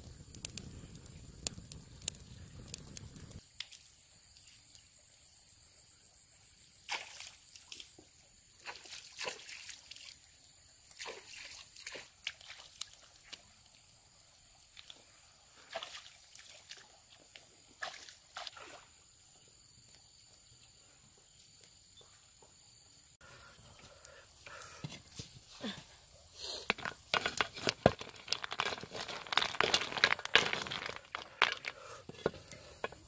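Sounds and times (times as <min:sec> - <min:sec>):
stream water splashing: 0:06.9 - 0:08.0, 0:08.6 - 0:13.4, 0:15.6 - 0:19.0.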